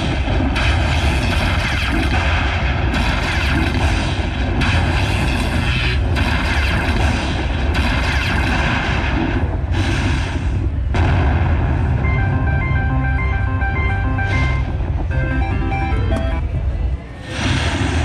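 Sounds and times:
slot machine rumbling crash: 11.8s - 16.4s.

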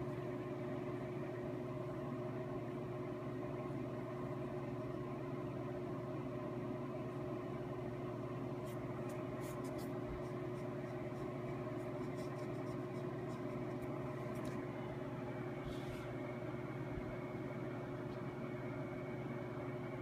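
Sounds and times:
steady mechanical hum: 0.0s - 20.0s
brush ticking on paper: 8.6s - 14.5s.

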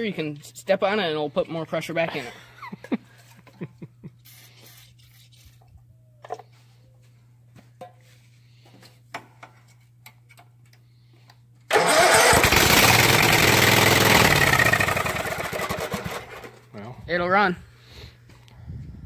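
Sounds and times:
mower engine running: 11.7s - 16.6s.

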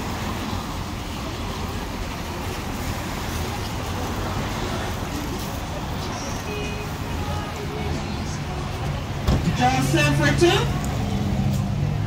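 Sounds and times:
street traffic on wet pavement: 0.0s - 12.0s.

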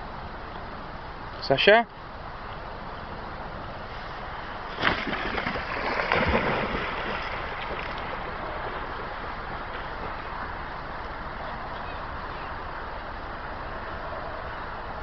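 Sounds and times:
dog splashing in water: 4.7s - 8.3s.

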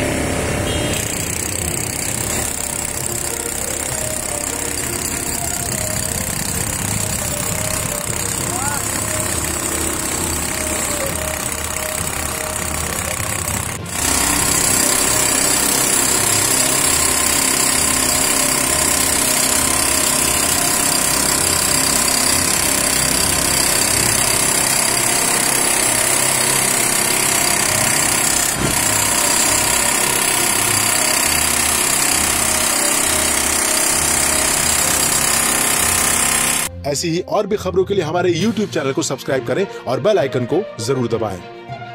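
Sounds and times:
demolition hammer chiselling concrete: 0.0s - 36.7s
worksite noise: 0.0s - 36.8s.

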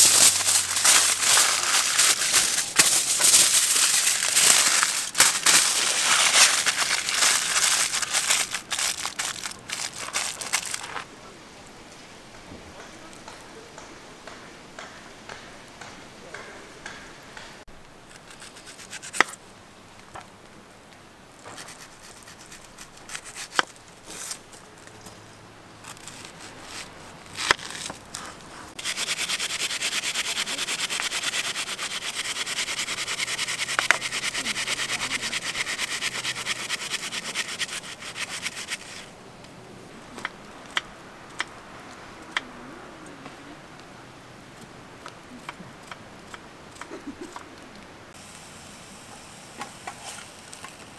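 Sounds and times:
food grated on plastic grater: 0.0s - 10.8s, 28.8s - 39.0s.

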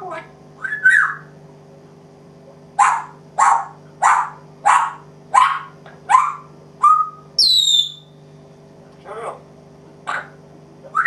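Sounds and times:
parrot mimicking dog barks: 0.0s - 1.2s, 2.8s - 7.2s, 10.1s - 11.0s
parrot whistle falling in pitch: 6.8s - 8.1s.

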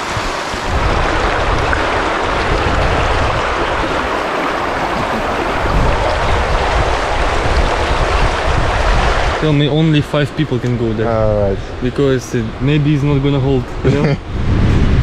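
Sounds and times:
river rushing over stones: 0.0s - 11.2s.

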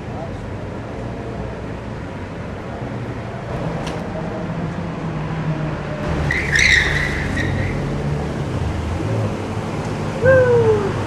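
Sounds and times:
traffic rumbling: 0.0s - 11.0s
tyre squeal: 6.1s - 8.0s.

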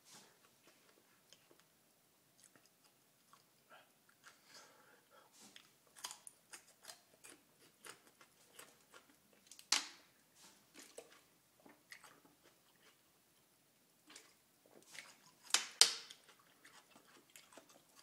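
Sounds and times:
crunchy chewing: 2.4s - 4.5s, 5.5s - 9.7s, 10.5s - 18.0s.

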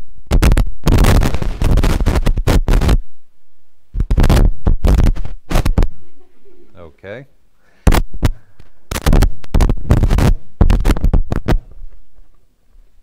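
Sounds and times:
microphone crackling and scratching: 0.0s - 6.2s, 7.8s - 13.0s.

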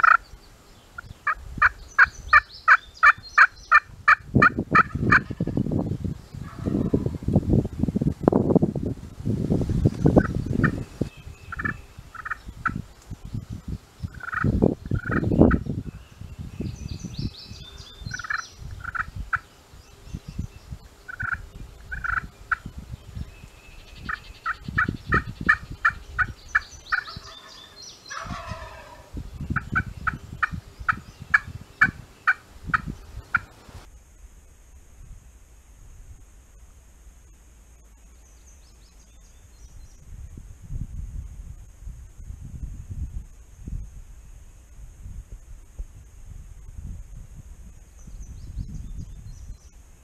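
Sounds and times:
turkey gobble: 2.3s - 5.4s, 11.5s - 12.4s, 14.2s - 15.2s, 18.2s - 19.1s, 21.1s - 22.2s, 26.9s - 29.1s
turkey yelps: 26.9s - 29.1s.

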